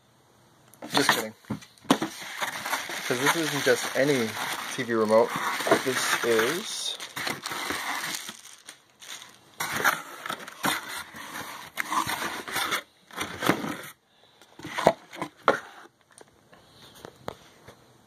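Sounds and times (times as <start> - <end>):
packing material and cardboard rustling: 0.8 - 14.0.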